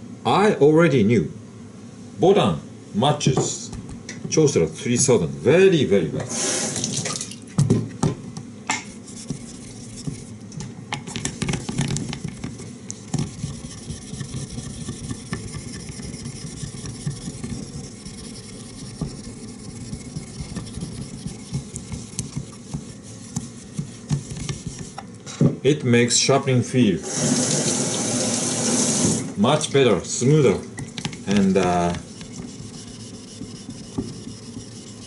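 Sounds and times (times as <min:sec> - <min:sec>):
stone scrubbing on wet whetstone: 0:08.7 - 0:10.4, 0:11.3 - 0:25.0, 0:31.0 - 0:35.0.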